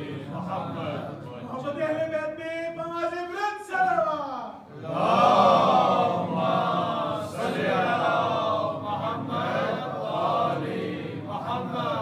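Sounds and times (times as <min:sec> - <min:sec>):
voices chanting: 0:04.7 - 0:12.0.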